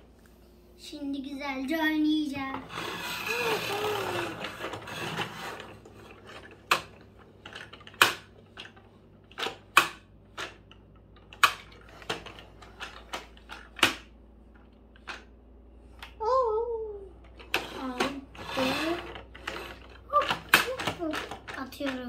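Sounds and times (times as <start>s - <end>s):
plastic toy clicks and knocks: 2.8s - 14.1s, 17.3s - 22.0s.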